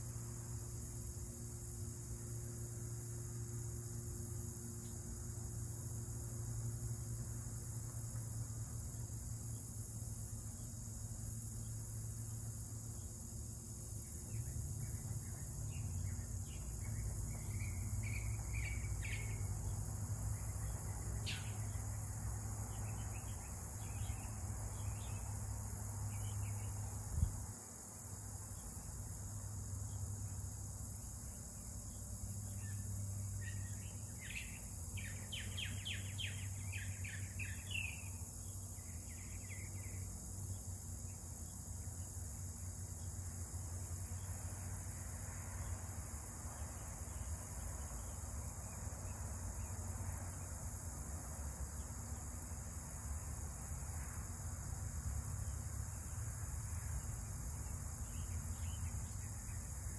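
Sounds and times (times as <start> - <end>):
high insect drone: 0.0 - 59.9
small birds chirping: 20.4 - 21.9, 33.4 - 38.1.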